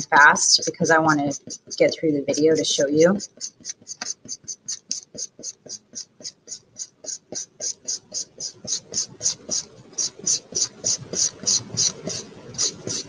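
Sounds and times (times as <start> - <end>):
marker scribbling on paper: 0.0 - 13.0.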